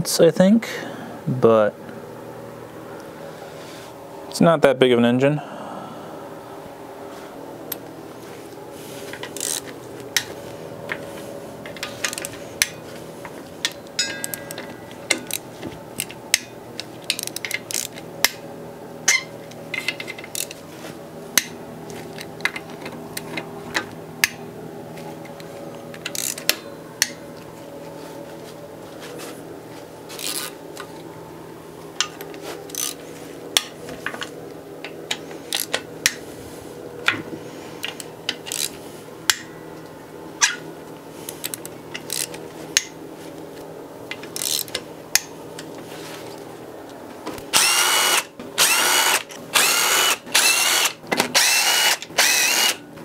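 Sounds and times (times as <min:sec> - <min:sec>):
steady background hum: 0:00.0 - 0:53.0
wrench clicking on metal bolts: 0:26.0 - 0:26.5.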